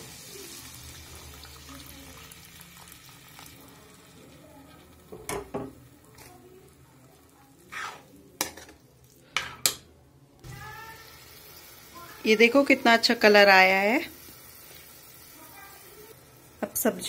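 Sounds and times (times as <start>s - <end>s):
faint sizzle: 0.0s - 17.0s
spoon stirring gravy: 5.8s - 9.8s.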